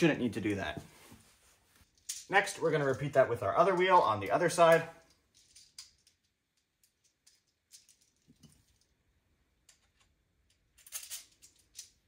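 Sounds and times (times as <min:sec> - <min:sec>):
small plastic and metal parts clicking: 0:05.0 - 0:08.9, 0:09.6 - 0:12.0.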